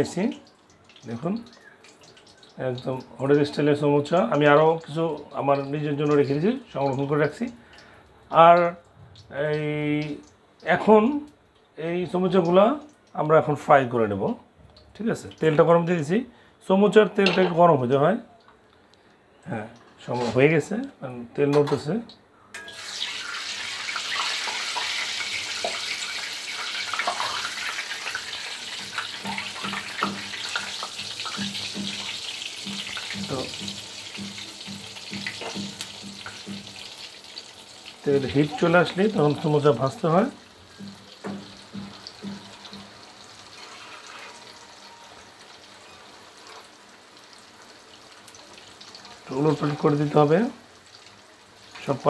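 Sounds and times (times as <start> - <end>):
oil crackling and popping: 0.6 - 3.1, 22.6 - 52.0
food sizzling in hot oil: 22.6 - 52.0.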